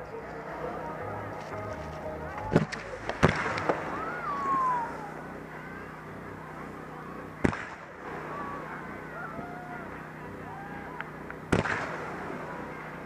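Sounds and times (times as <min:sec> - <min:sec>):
fireworks banging: 0:02.4 - 0:03.9.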